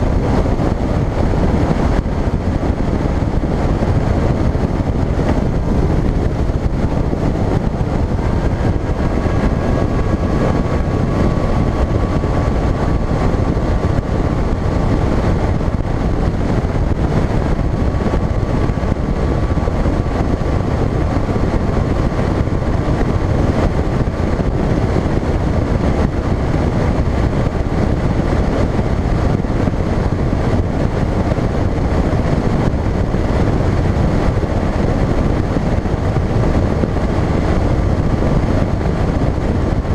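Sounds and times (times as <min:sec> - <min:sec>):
faint steady whine: 0:00.0 - 0:39.9
outboard engine and hull noise: 0:00.0 - 0:39.9
wind on microphone: 0:00.0 - 0:39.9.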